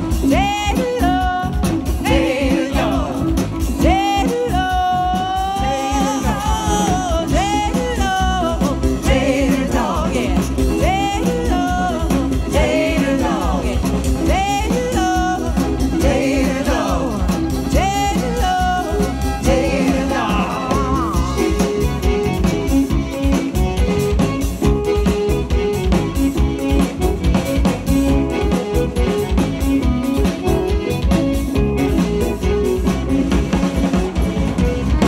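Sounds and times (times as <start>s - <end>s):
person singing: 0.0s - 23.4s
button accordion: 0.0s - 35.0s
fiddle: 0.0s - 35.0s
live band playing: 0.0s - 35.0s.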